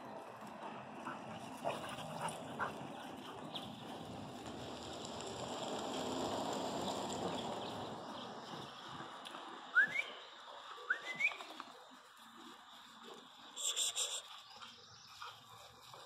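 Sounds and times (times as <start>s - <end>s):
short rising whistles: 9.7s - 10.3s, 10.9s - 11.5s.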